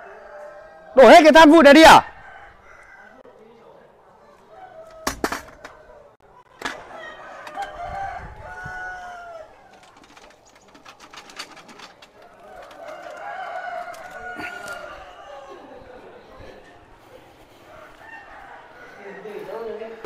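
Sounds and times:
rooster crowing: 0.0 - 1.1, 1.9 - 3.3, 4.2 - 6.2, 6.8 - 10.1, 11.4 - 16.1, 17.6 - 20.0
sharp clattering knocks: 5.0 - 5.8.

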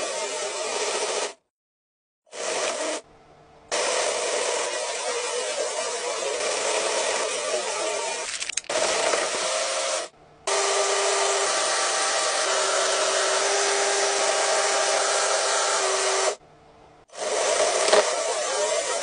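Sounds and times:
electric motors whirring and clattering: 5.5 - 16.4, 17.2 - 19.0.

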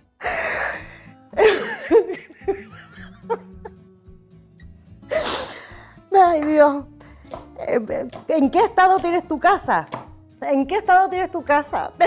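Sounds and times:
soft background music: 0.0 - 12.0.

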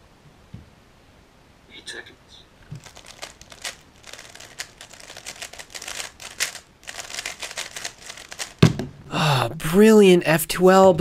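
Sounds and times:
puzzle cube clicking: 2.8 - 8.6
thump: 8.6 - 9.0.

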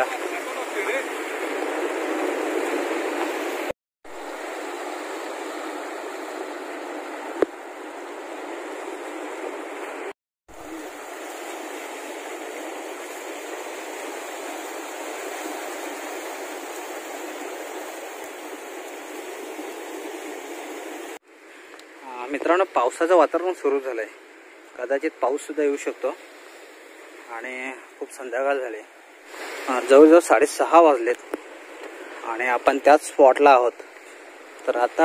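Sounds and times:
surf washing on rocky shore: 0.0 - 21.2, 25.3 - 35.0.

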